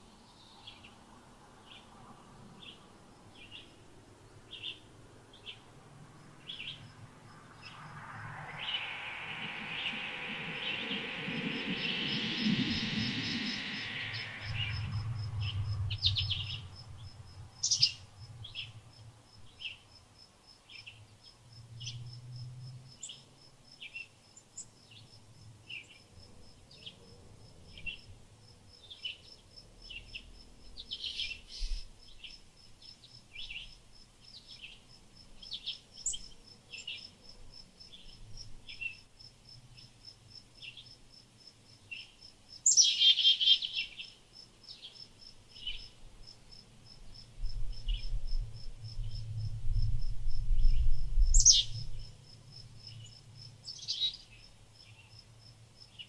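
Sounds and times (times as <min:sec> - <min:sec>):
songbirds chirping: 0:00.0 - 0:20.0, 0:41.7 - 0:46.1, 0:52.8 - 0:56.0
high pulsing insect trill: 0:05.7 - 0:19.0, 0:43.7 - 0:55.9.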